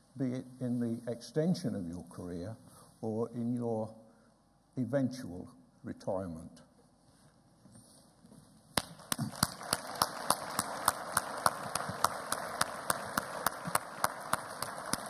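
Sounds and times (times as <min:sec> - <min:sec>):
audience applauding: 0:08.8 - 0:15.0
sharp even hand claps: 0:08.8 - 0:15.0.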